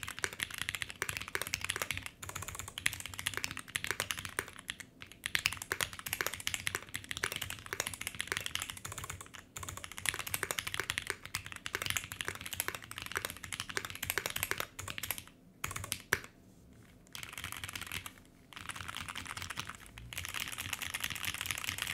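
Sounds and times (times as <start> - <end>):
mechanical keyboard typing: 0.0 - 16.4, 17.1 - 21.9.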